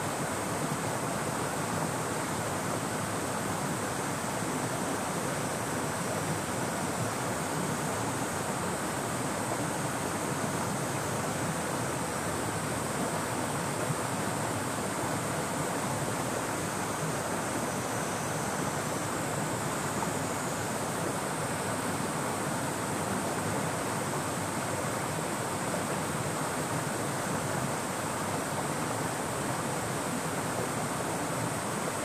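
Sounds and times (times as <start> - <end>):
cicadas droning: 0.0 - 32.0
river water rushing: 0.0 - 32.0.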